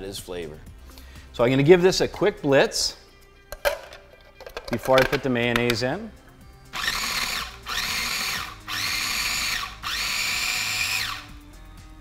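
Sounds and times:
food processor motor whining: 6.8 - 11.4.

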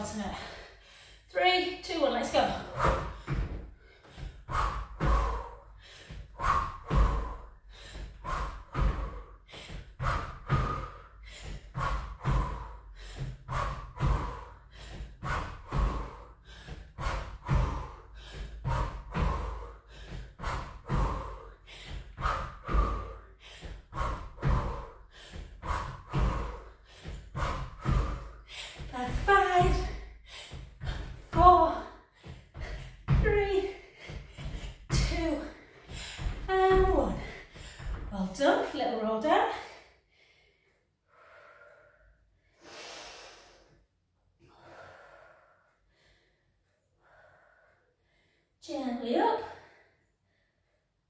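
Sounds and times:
hard breathing: 0.0 - 43.8, 44.4 - 51.0.

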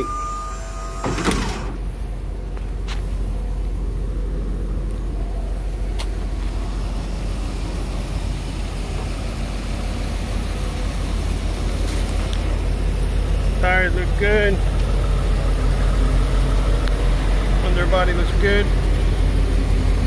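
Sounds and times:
truck engine idling: 0.0 - 20.0.

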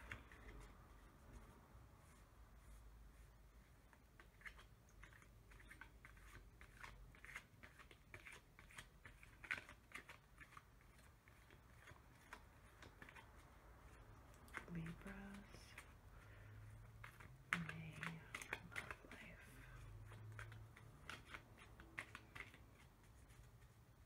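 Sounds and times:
cards shuffling: 0.0 - 24.0.

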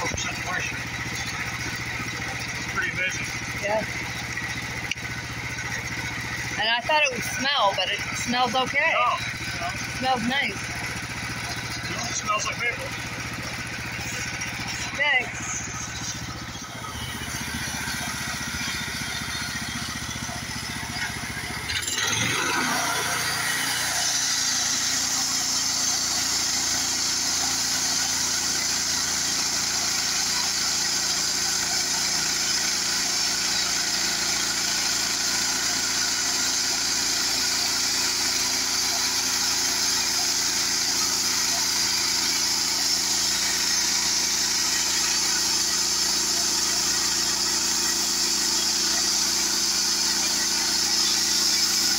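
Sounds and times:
sawmill gas engine running: 0.0 - 51.9
band blade sawing through log: 21.8 - 51.9.

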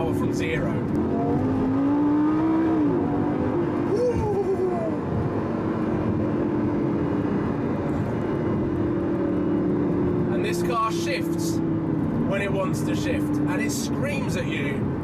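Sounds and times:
car engine accelerating: 0.0 - 15.0.

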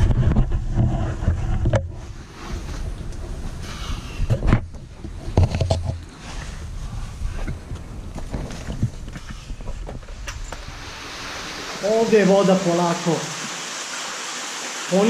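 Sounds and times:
knocks and scrapes on rock: 0.0 - 2.2, 4.3 - 6.5
camera handling rumble: 4.3 - 6.2.

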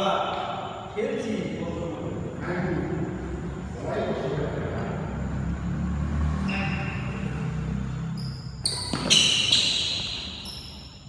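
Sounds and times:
shoes squeaking on court floor: 6.4 - 11.0
racket striking shuttlecock: 8.7 - 10.4.

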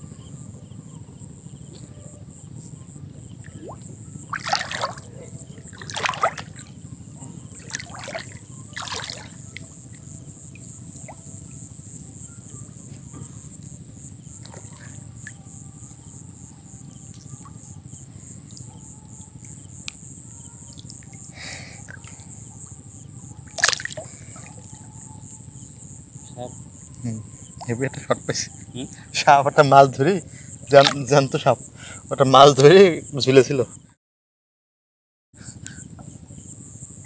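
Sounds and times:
crickets chirring: 0.0 - 34.0, 35.4 - 37.0
water splashing: 3.5 - 6.7, 7.5 - 9.7, 23.5 - 24.6, 30.8 - 31.1
water rushing: 3.6 - 5.1, 5.7 - 6.6, 7.6 - 9.4.

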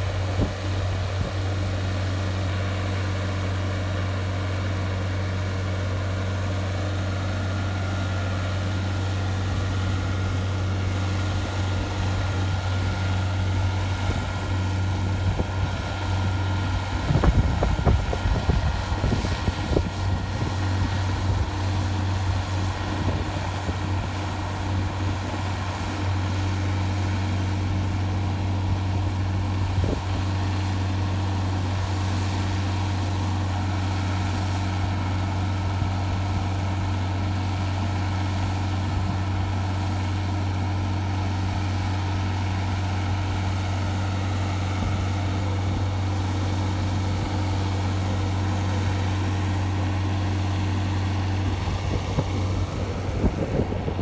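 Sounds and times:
engine droning at steady revs: 0.0 - 54.0.

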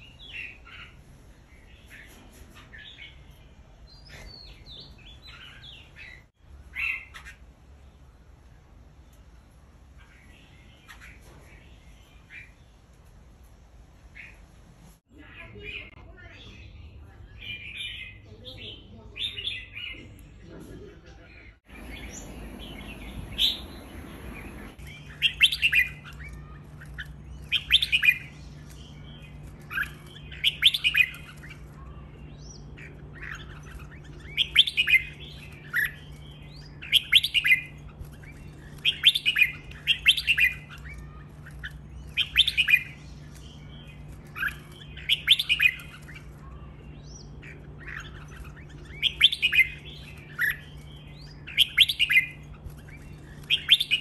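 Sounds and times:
bulbul singing: 21.3 - 54.0.

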